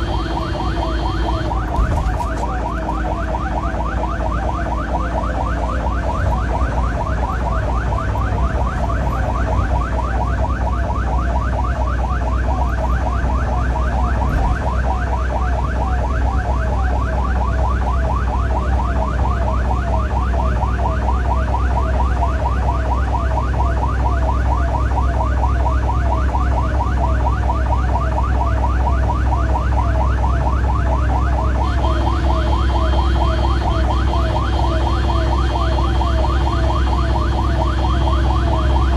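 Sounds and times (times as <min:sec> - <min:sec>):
ambulance siren yelping: 0:00.0 - 0:38.9
engine and tyre rumble: 0:00.0 - 0:38.9.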